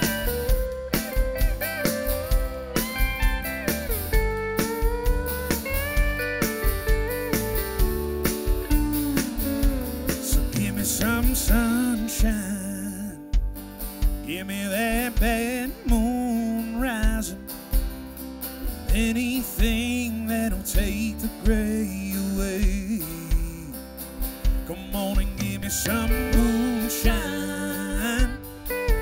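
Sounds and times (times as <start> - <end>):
pedal steel guitar sliding notes: 0.0 - 12.2, 25.4 - 29.0
country band playing: 0.0 - 29.0.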